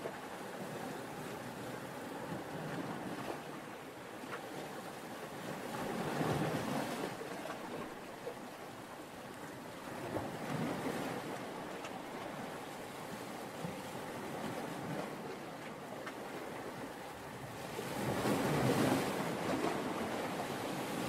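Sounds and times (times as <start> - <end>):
sea waves rushing: 16.2 - 21.0.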